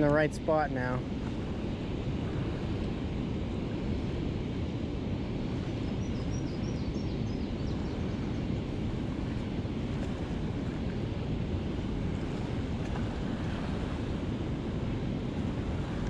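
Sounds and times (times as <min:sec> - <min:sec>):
wind buffeting microphone: 0:00.0 - 0:16.0
river water rushing: 0:07.8 - 0:16.0.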